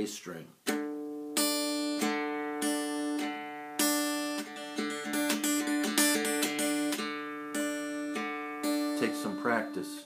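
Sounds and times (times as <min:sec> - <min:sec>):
dulcimer strummed and plucked: 0:00.7 - 0:10.0.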